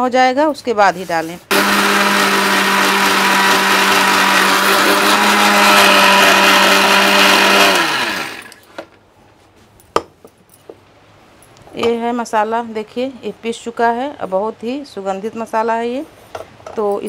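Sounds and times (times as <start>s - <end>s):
electric mixer grinder motor: 1.5s - 8.7s.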